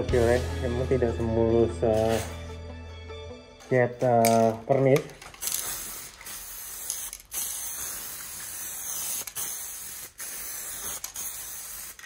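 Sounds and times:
aerosol spray can hissing: 5.4 - 12.0.

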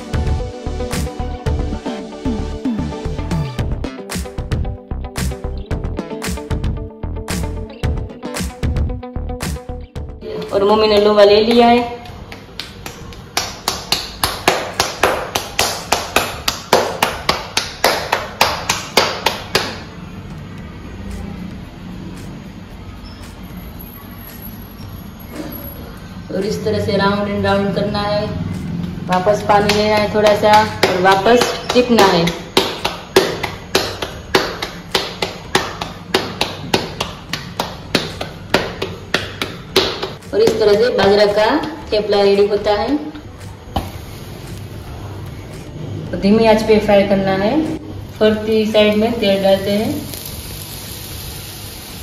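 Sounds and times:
hands slapping dough: 11.0 - 19.8, 29.1 - 41.8.

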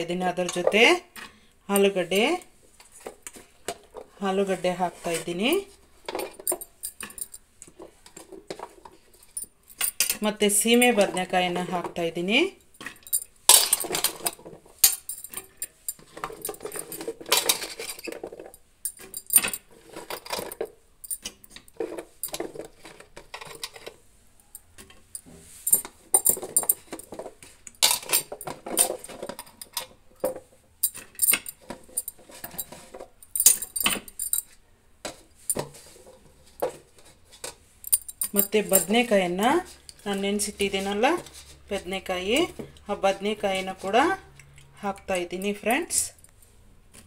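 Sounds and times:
vegetables clinking against metal pot: 0.0 - 34.4.

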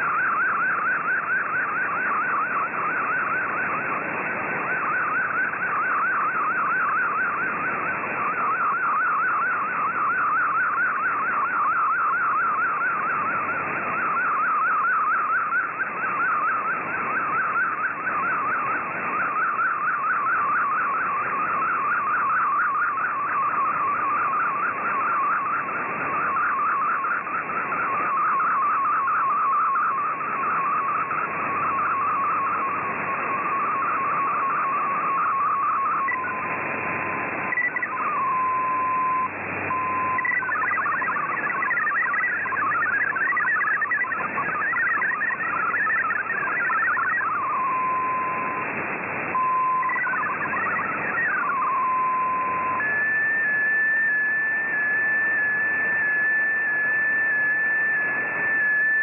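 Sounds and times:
steady data tone: 0.0 - 59.0
warbling data tone: 0.0 - 59.0
rapid jumbled chirping tones: 37.5 - 48.2.

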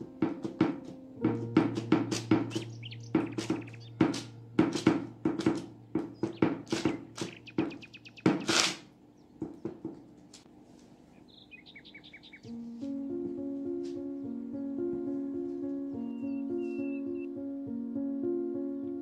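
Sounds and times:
palm patting dough on metal tray: 0.0 - 8.6
steady low hum: 0.0 - 11.3.

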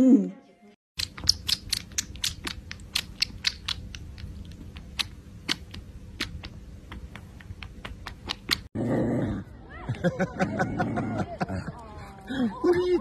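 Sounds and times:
kitten sucking clicks: 1.0 - 8.7.

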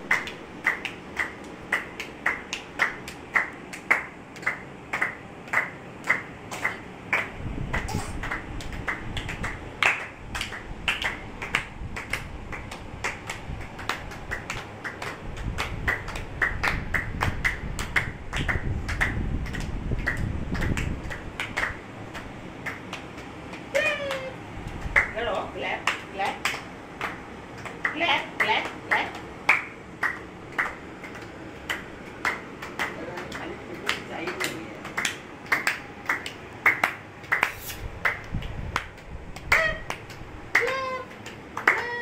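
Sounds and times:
low rumbling noise: 0.0 - 25.9, 34.6 - 42.0.

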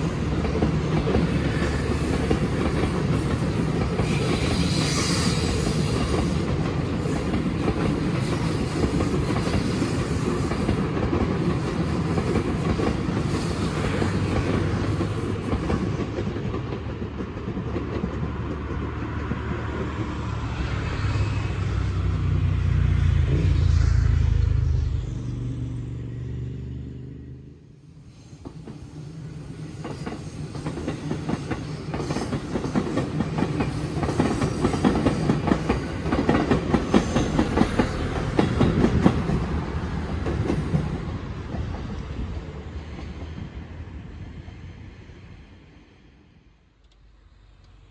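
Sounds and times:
low train rumble: 0.0 - 47.9
train wheels clattering over rail joints: 29.7 - 41.8.

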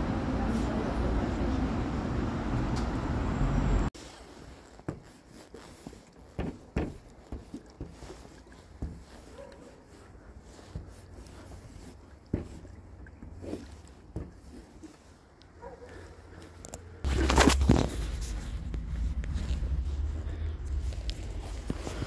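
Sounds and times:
loud street noise: 0.0 - 3.9.

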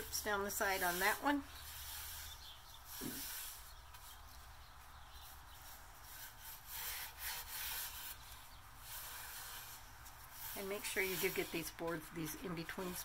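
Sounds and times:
paintbrush swishing on wood: 0.0 - 13.0.

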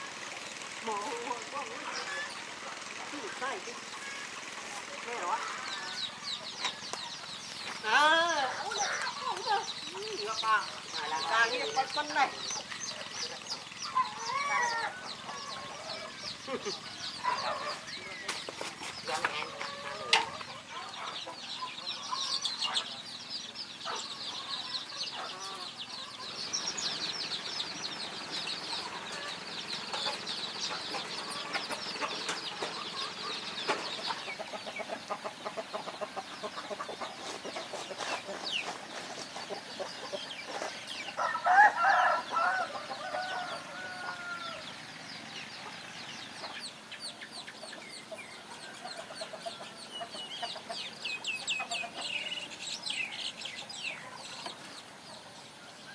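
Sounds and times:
chickens clucking: 0.0 - 55.9
small birds chirping: 0.0 - 55.9
rooster crowing: 41.1 - 44.8.

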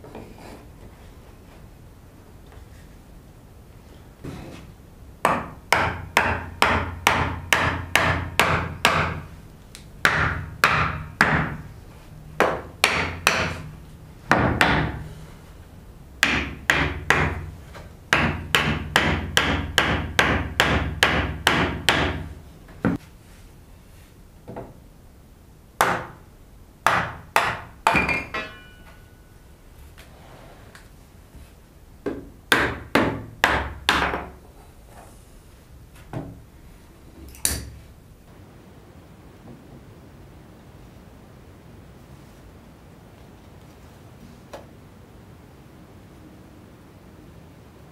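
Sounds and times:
hammer striking wood: 5.2 - 9.3, 10.0 - 11.7, 12.4 - 13.7, 14.3 - 15.1, 16.2 - 17.5, 18.1 - 23.0, 25.8 - 26.2, 26.8 - 29.1, 32.0 - 34.4
ringing clink: 28.3 - 29.2.

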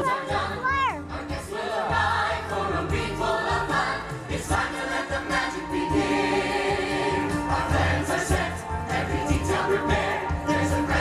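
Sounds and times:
ensemble singing together: 0.0 - 11.0
musical backing track: 0.0 - 11.0.

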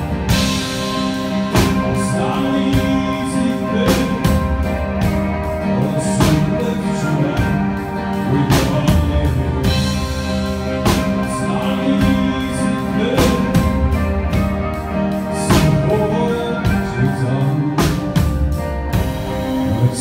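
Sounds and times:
heavy drum and cymbal hits: 0.0 - 6.8
live band playing: 0.0 - 20.0.

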